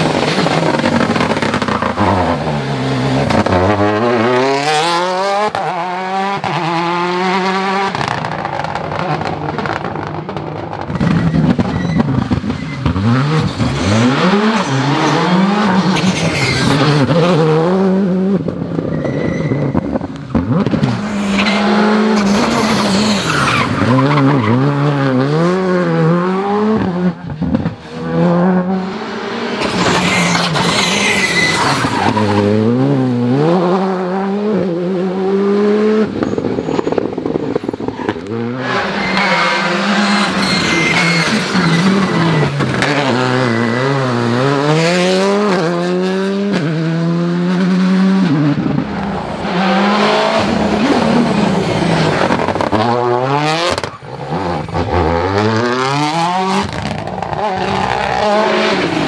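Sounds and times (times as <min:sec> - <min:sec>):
rally car engines revving: 0:00.0 - 0:59.0
tyre squeals: 0:10.9 - 0:17.2, 0:18.8 - 0:20.1, 0:21.0 - 0:24.8, 0:29.6 - 0:32.7, 0:37.9 - 0:44.6.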